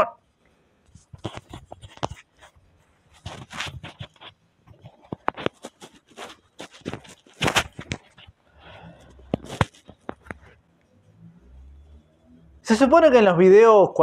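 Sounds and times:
fabric rustling against microphone: 0:00.8 - 0:10.8.

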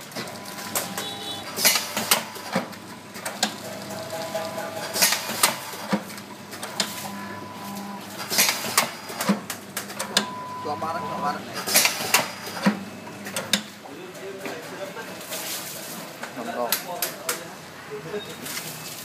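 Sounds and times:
packing machine clattering: 0:00.0 - 0:10.4, 0:11.5 - 0:13.8.

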